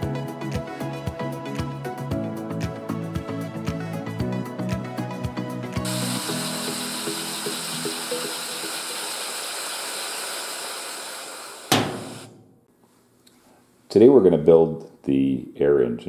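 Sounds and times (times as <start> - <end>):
air engine hissing: 5.8 - 12.4
sharp knock: 11.7 - 12.7.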